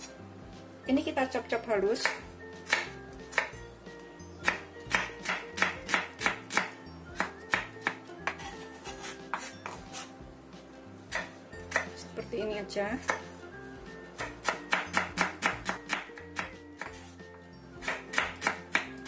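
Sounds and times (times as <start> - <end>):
quiet background music: 0.0 - 19.0
knife chopping on wooden board: 2.0 - 3.6, 4.4 - 10.1, 11.1 - 12.0, 13.0 - 13.3, 14.2 - 17.1, 17.8 - 19.0.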